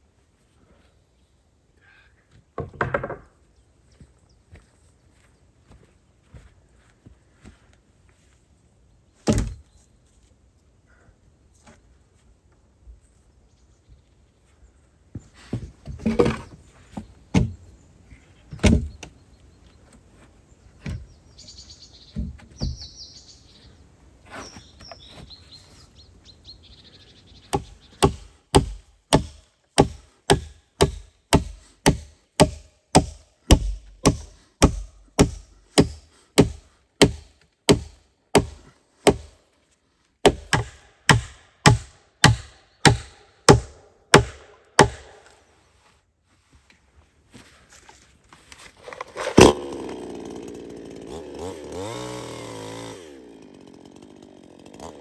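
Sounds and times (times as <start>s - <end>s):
logs knocking: 2.6s - 3.3s
bird chirps: 21.0s - 23.8s.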